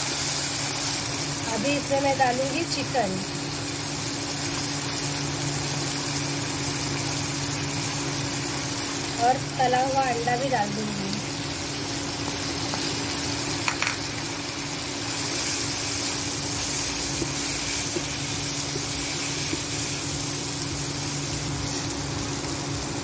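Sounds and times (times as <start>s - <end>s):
food sizzling in a frying pan: 0.0s - 23.0s
spatula stirring food: 14.8s - 22.0s.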